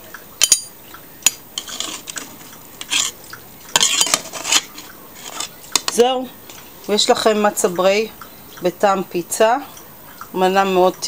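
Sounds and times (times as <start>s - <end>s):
knife scraping frying pan: 1.3s - 6.0s.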